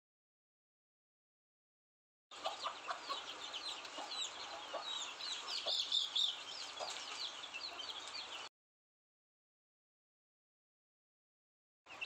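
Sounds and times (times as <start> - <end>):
hen clucking: 2.3 - 8.4
chicks peeping: 2.3 - 8.5.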